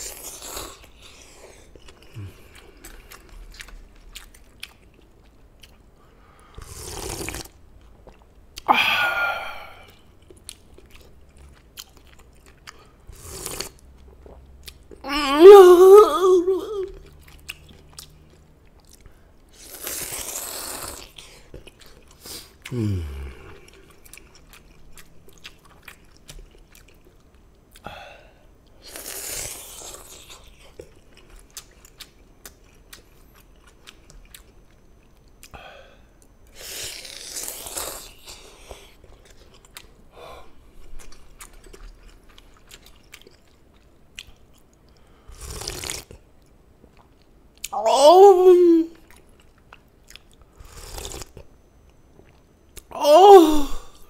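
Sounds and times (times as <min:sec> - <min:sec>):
chewing with wet clicks: 0:00.8 - 0:06.1, 0:07.1 - 0:08.7, 0:09.8 - 0:15.0, 0:16.9 - 0:19.6, 0:21.0 - 0:22.8, 0:23.4 - 0:27.9, 0:29.9 - 0:36.6, 0:38.5 - 0:40.1, 0:40.8 - 0:47.8, 0:49.0 - 0:52.9
slurping noodles: 0:06.6 - 0:07.6, 0:13.1 - 0:13.8, 0:45.3 - 0:46.1, 0:50.6 - 0:51.3.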